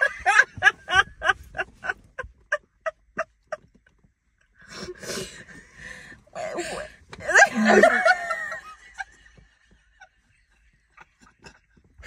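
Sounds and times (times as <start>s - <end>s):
women laughing: 0.0s - 3.9s, 6.4s - 12.0s.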